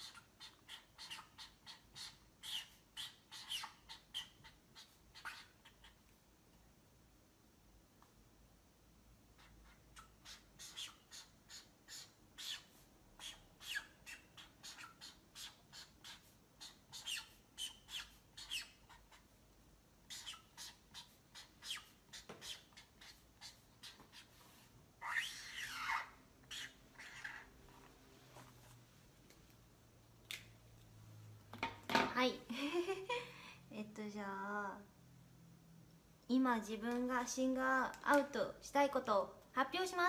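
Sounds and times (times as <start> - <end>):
marker pen squeaking on board: 0.0 - 6.0, 9.4 - 19.3, 20.1 - 27.5.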